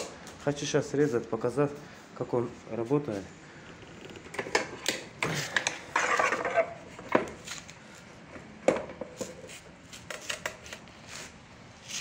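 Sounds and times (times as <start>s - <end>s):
scoring wheel scraping tile: 5.4s - 6.8s.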